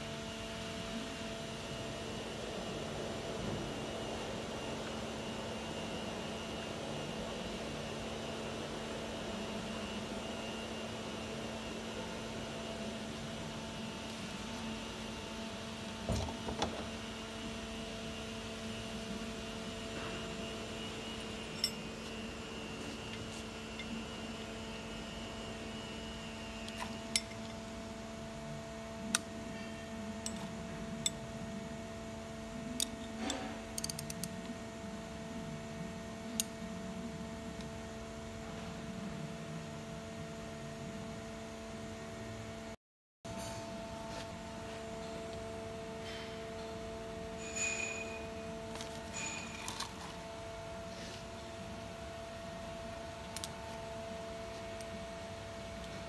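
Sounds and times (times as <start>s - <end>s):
steady hum with tones: 0.0s - 56.0s
metallic clinks of wrenches: 47.4s - 50.0s.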